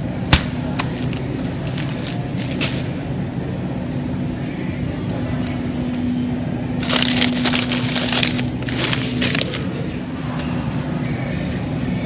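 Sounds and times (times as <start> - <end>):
steady low hum: 0.0 - 12.0
plastic bag of frozen beans crinkling: 6.8 - 9.8.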